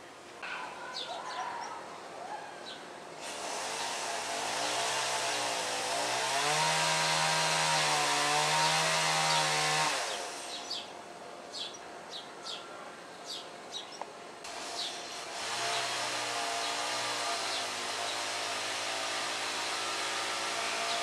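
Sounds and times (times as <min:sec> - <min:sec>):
power tool running: 0:03.2 - 0:10.6, 0:14.5 - 0:21.0
small birds chirping: 0:10.1 - 0:14.1, 0:14.7 - 0:15.9.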